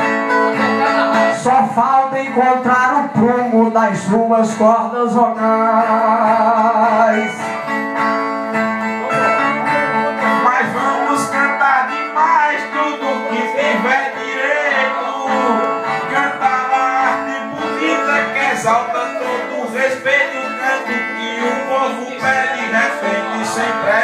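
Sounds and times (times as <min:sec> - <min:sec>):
man singing: 0:00.0 - 0:07.6, 0:09.0 - 0:24.0
plucked violas: 0:05.8 - 0:24.0.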